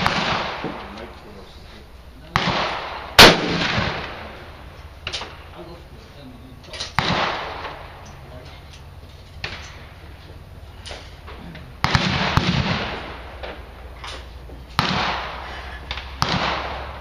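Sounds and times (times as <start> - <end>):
rifle shots with echo: 0.0 - 1.2, 2.2 - 5.6, 6.8 - 8.0, 11.8 - 13.9, 14.7 - 17.0
faint distant rifle shots: 0.0 - 1.4, 2.2 - 5.6, 6.8 - 8.1, 10.9 - 14.0, 14.7 - 17.0.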